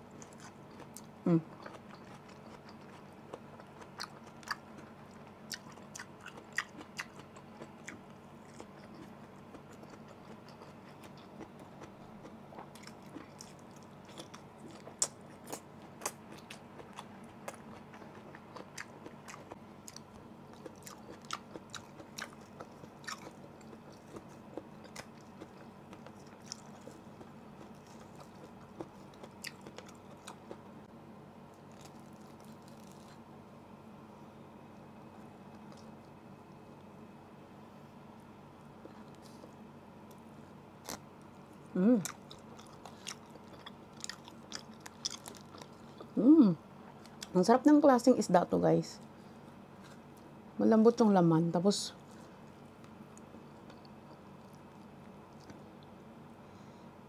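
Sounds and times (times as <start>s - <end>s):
chewing vegetables: 0.0s - 30.8s, 31.5s - 33.3s, 35.2s - 36.2s, 40.8s - 47.4s, 52.0s - 56.0s.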